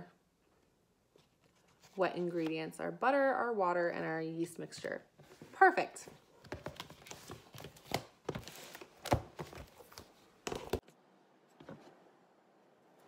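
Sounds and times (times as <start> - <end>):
paper rustling: 6.4 - 10.8.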